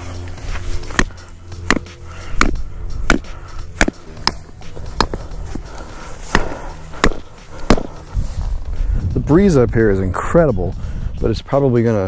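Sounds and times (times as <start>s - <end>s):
rock pounding tent stake: 0.8s - 5.2s, 6.3s - 8.0s
wind rumble on microphone: 8.0s - 12.0s.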